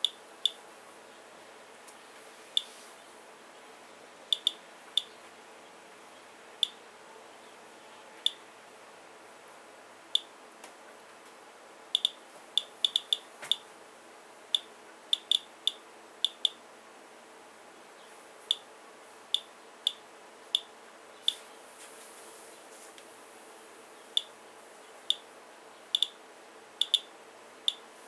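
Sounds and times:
geiger counter clicking: 4.3 - 4.6, 12.0 - 13.2, 14.6 - 16.6, 26.0 - 26.2, 26.8 - 27.1.

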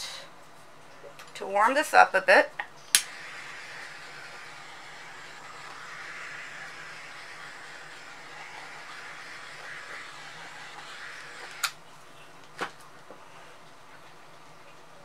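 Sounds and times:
heat tool rushing hiss: 2.9 - 11.8.

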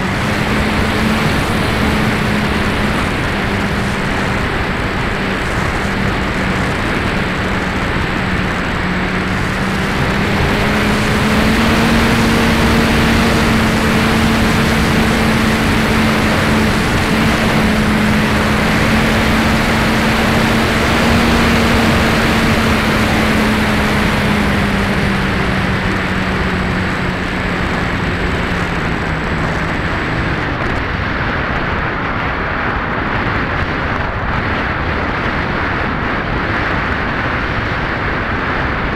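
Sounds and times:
electric motor and propeller humming: 0.0 - 31.9
wind rushing: 0.0 - 38.9.

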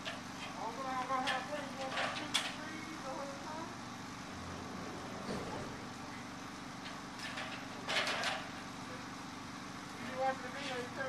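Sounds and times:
low engine hum: 0.0 - 11.0
metal ladder clattering: 6.9 - 8.6.

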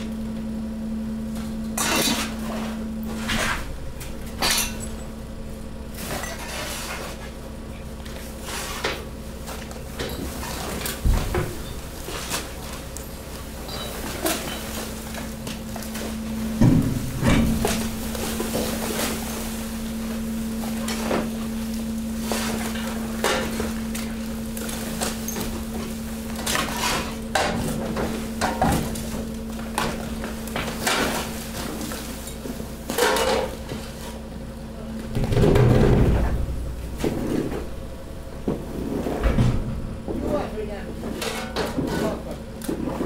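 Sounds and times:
steady machine hum: 0.0 - 43.0
garbage clattering into compactor: 9.8 - 34.1, 34.8 - 43.0
loud rumbling crash: 39.2 - 40.2.

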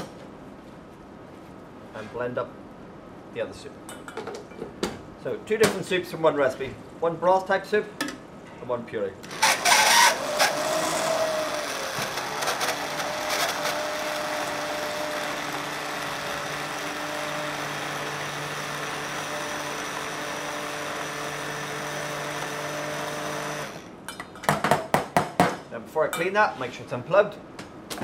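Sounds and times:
hand blender motor whine: 9.3 - 23.9.

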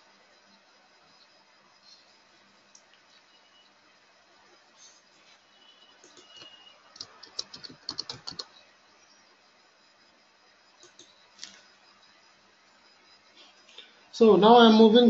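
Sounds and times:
typing on computer keyboard: 6.0 - 8.5.

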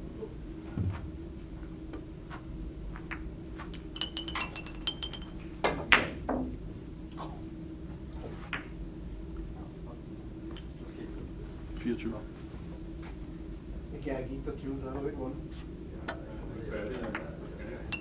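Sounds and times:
loud knock: 0.8 - 1.1
billiard balls clicking: 3.1 - 6.2.

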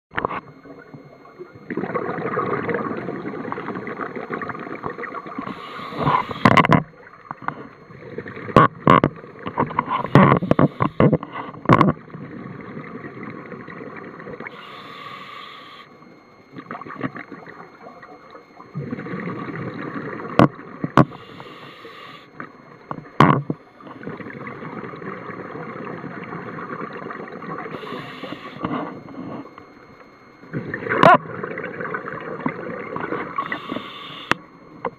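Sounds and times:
exhaled bubbles rushing: 1.7 - 5.5
regulator inhalation hiss: 5.4 - 6.6, 10.0 - 11.1, 14.5 - 15.9, 21.1 - 22.3, 27.7 - 28.6, 33.4 - 34.4.

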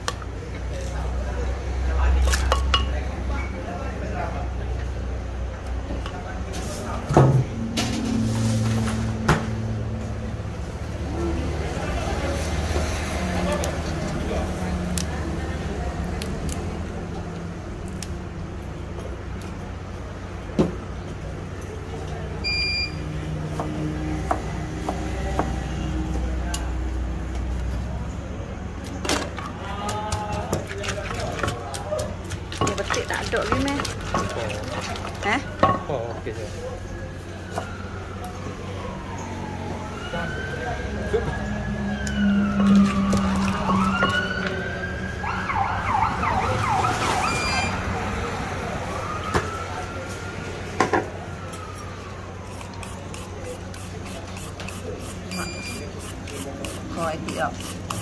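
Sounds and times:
short electronic beep: 22.4 - 23.0, 47.2 - 47.8, 55.3 - 55.9
emergency vehicle siren: 36.7 - 53.5.

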